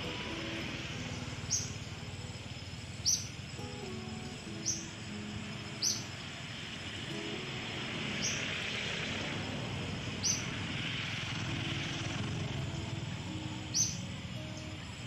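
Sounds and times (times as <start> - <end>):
high-pitched bird chirps: 3.0 - 6.2, 13.4 - 14.8
outdoor rushing noise: 4.5 - 14.4.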